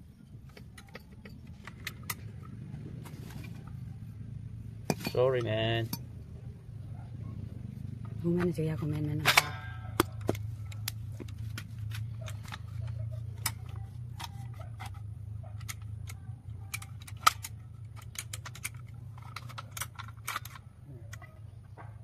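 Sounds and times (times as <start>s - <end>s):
metal parts clattering: 4.9s - 6.0s, 11.5s - 21.4s.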